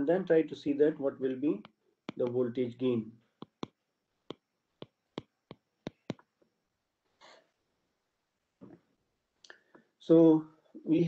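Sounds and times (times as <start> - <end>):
stylus tapping glass screen: 1.5 - 6.4.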